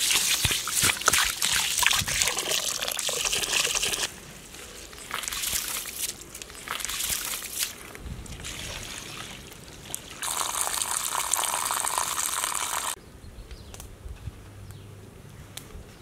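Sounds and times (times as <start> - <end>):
water pouring off basin: 0.0 - 4.1, 8.4 - 13.0
water sloshing in basin: 0.0 - 4.1, 5.1 - 11.5.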